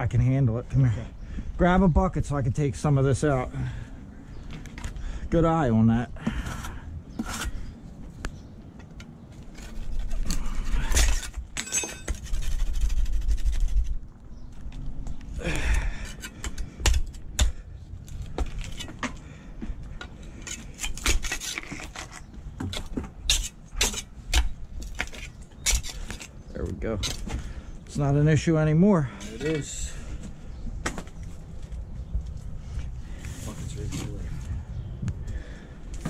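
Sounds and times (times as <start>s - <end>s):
trowel scraping mortar: 6.4s - 7.7s, 20.4s - 24.1s.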